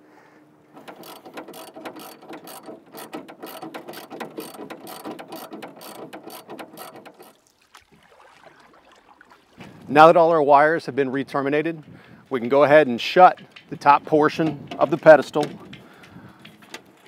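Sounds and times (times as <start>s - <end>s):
ratchet wrench clicking: 0.8s - 7.3s.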